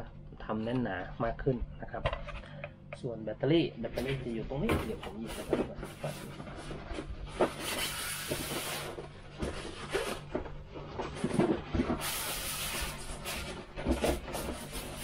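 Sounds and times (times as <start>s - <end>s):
faint low hum: 0.0s - 12.0s
packaging rustling and crinkling: 5.1s - 15.0s.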